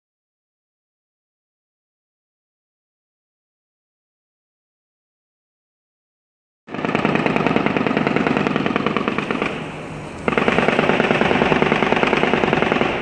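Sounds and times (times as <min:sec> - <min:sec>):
rapid automatic gunfire: 0:06.7 - 0:13.0.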